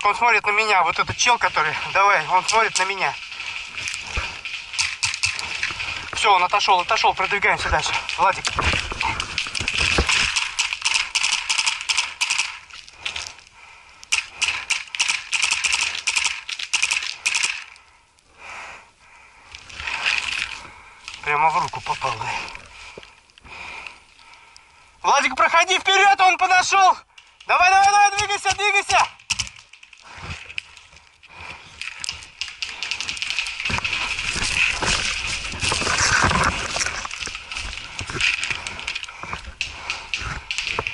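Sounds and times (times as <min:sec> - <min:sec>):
clothing and gear rustling: 0:00.6 - 0:13.6, 0:29.5 - 0:40.9
footsteps crunching twigs: 0:00.8 - 0:10.8, 0:29.6 - 0:40.9
paintball marker rapid shots: 0:04.2 - 0:05.7, 0:09.4 - 0:12.6, 0:14.1 - 0:17.6, 0:27.8 - 0:29.7, 0:32.4 - 0:35.0.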